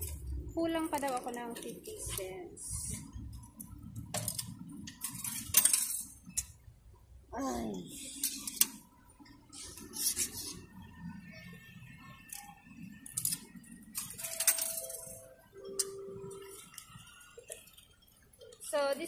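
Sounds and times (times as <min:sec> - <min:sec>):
coins clunking through machine: 0:04.1 - 0:06.2, 0:13.1 - 0:16.3.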